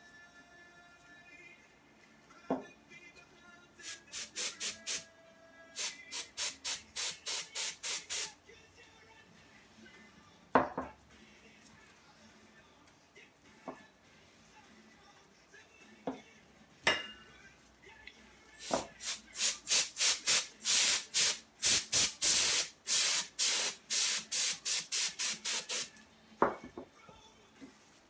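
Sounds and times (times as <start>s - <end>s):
compressed air hissing blasts: 3.8s - 5.0s, 5.8s - 8.4s, 18.6s - 25.9s.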